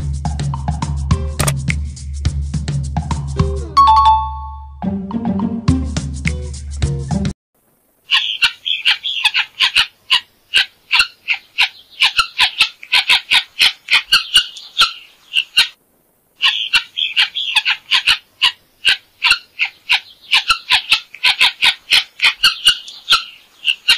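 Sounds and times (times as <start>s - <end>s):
guineafowl calling: 8.1s - 15.8s, 16.4s - 23.9s.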